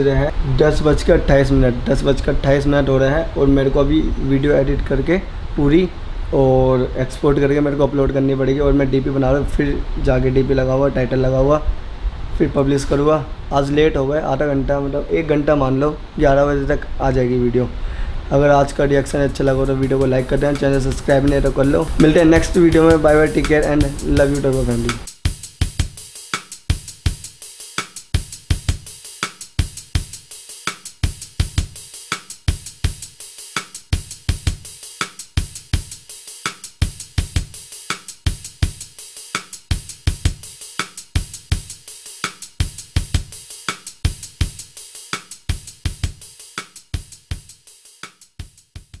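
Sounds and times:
drum kit beat: 18.6 - 49.0.

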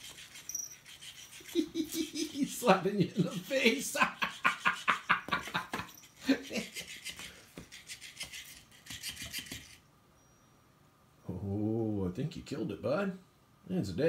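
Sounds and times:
scratchy rustling and tapping: 0.0 - 9.8.

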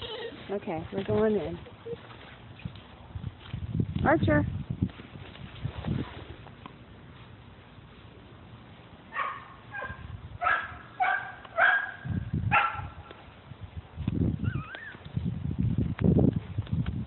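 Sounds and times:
small dog yipping: 14.4 - 15.1.

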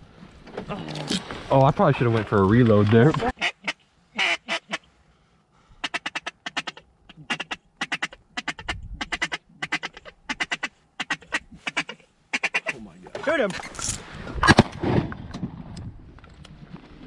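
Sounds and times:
duck call quacks: 3.3 - 4.9, 5.8 - 12.8.

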